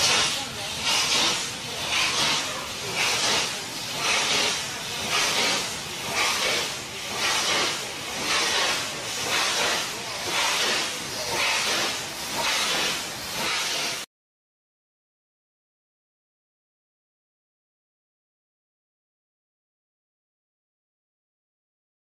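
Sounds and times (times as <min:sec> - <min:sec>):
steam locomotive chuffing: 0:00.0 - 0:14.1.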